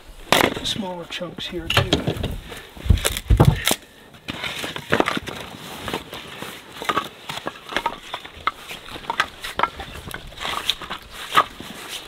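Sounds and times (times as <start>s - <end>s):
firewood knocking and clattering: 1.6s - 3.8s.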